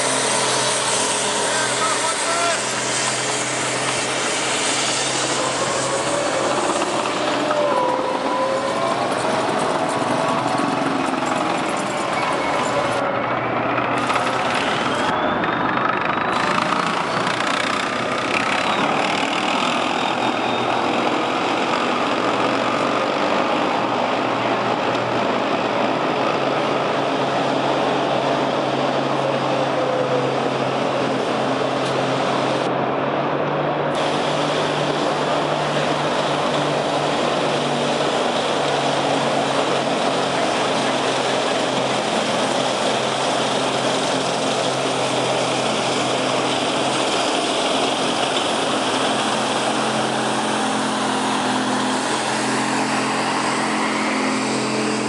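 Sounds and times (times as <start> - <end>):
wavering whines and squeals: 0.0 - 24.2, 24.8 - 55.0
diesel engine running: 0.0 - 55.0.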